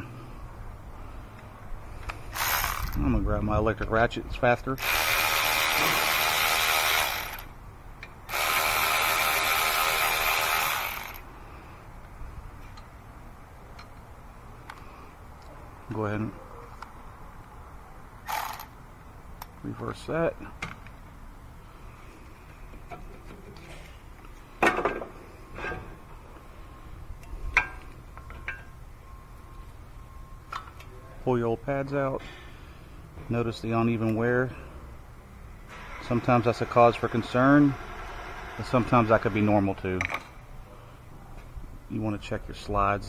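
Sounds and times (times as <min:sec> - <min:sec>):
electric ratchet running: 0:02.3 - 0:03.0, 0:04.8 - 0:07.6, 0:08.3 - 0:11.3, 0:18.2 - 0:18.8.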